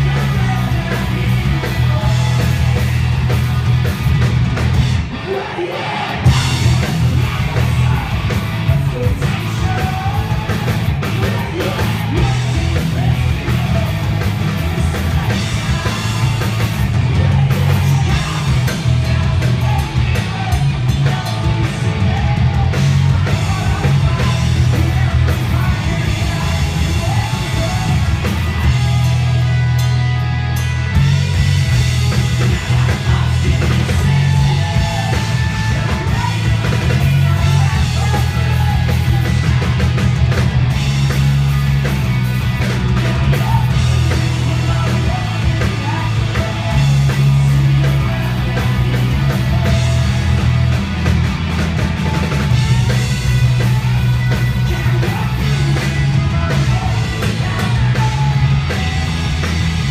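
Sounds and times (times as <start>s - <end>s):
punk rock band playing live: 0.0s - 59.9s
person singing: 32.1s - 39.7s, 52.0s - 59.9s.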